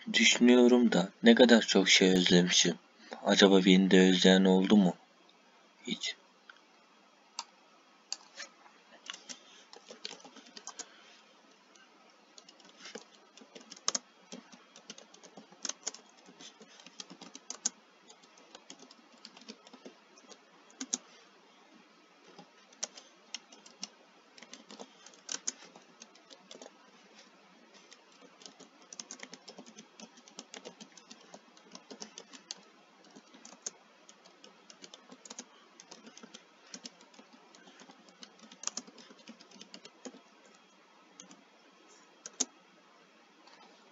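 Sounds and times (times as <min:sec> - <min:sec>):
keyboard typing: 0:09.0 - 0:10.9, 0:12.4 - 0:21.1, 0:22.2 - 0:27.2, 0:27.8 - 0:40.6, 0:41.2 - 0:41.4, 0:42.2 - 0:42.5.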